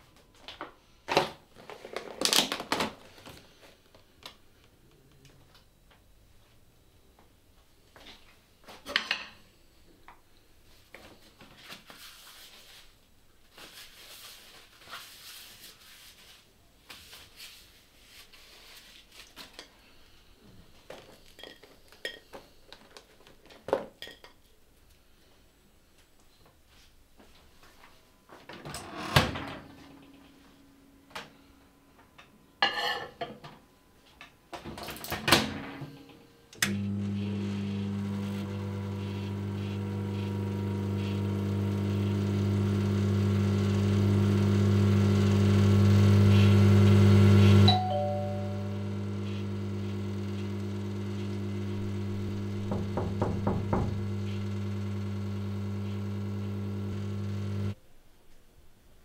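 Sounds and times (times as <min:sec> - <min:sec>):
microwave oven humming: 0:36.5 - 0:57.8
brief beep tone: 0:47.7 - 0:49.0.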